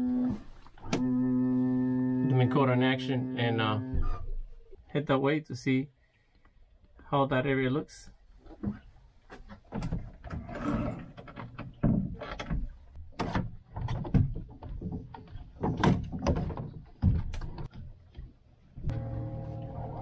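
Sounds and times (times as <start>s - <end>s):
knocks and rattles of trolling motor: 8.4s - 20.0s.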